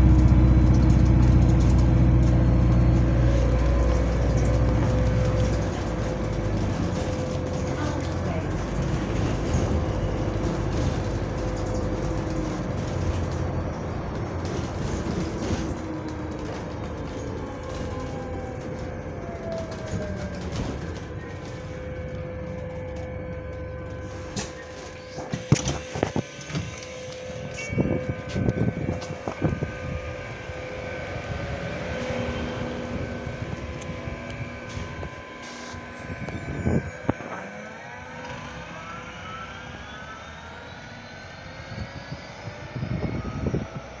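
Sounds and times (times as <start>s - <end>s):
bus accelerating whine: 0.0s - 44.0s
bus engine whirr: 0.0s - 44.0s.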